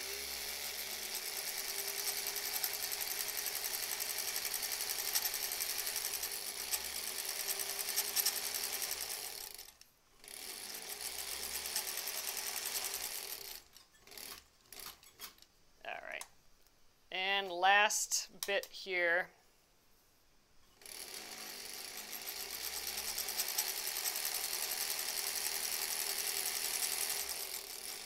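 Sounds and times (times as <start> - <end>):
sewing machine running: 0.0 - 15.0, 20.8 - 28.0.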